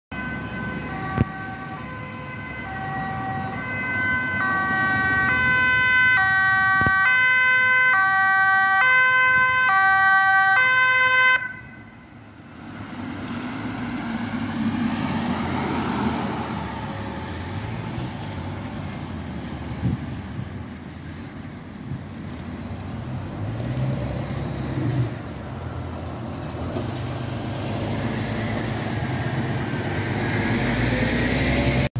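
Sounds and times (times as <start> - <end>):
ambulance two-tone siren: 0.1 - 12.2
traffic passing: 0.1 - 31.9.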